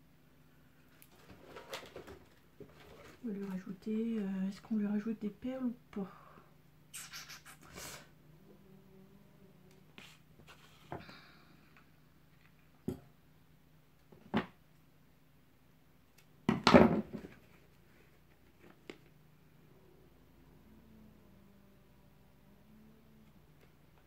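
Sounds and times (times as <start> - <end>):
clatter and rustle: 0.9 - 3.8.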